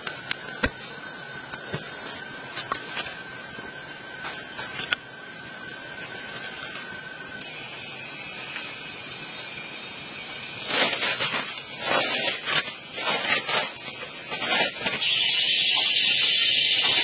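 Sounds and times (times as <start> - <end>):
leafy sticks rustling and scraping: 10.5 - 17.0
high insect buzzing: 11.5 - 17.0.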